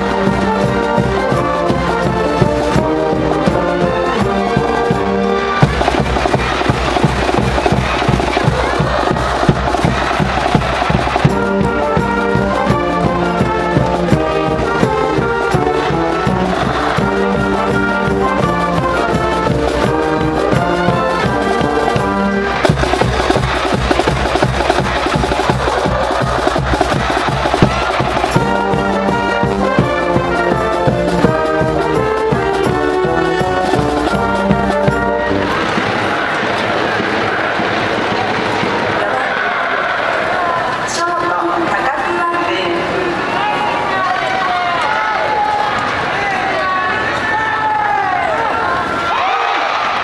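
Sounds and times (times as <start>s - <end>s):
steady drum beat: 0.0s - 38.8s
brass band playing: 0.0s - 49.3s.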